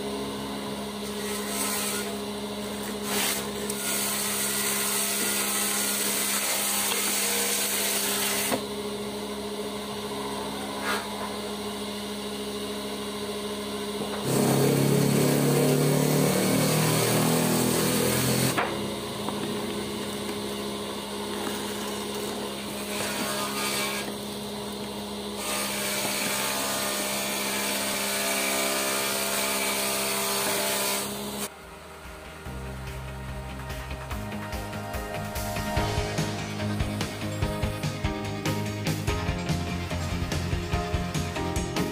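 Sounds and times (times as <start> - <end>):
power tool motor humming: 0.0 - 31.5.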